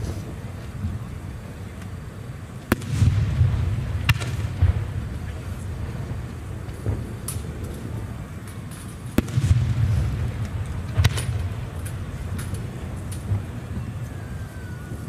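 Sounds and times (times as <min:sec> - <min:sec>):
distant firework cracks: 0:00.0 - 0:15.0
low rolling rumble: 0:00.0 - 0:15.0.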